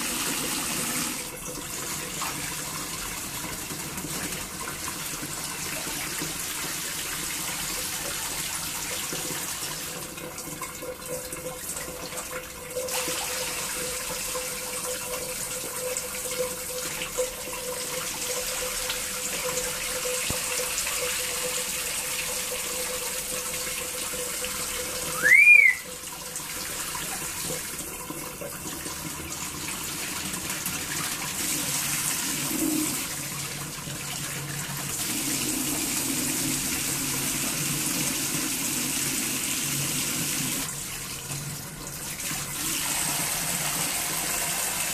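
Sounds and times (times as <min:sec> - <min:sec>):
bird whistle: 0:25.1 - 0:25.9.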